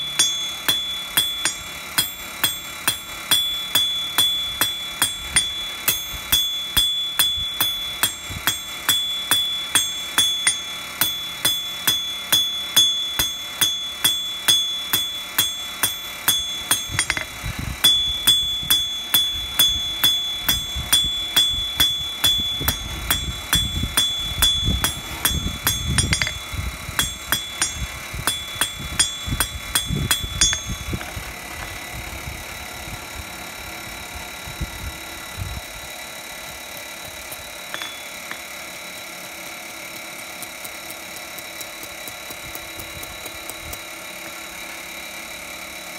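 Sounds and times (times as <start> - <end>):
hammer ringing on anvil: 0.0 - 31.2, 37.6 - 38.6.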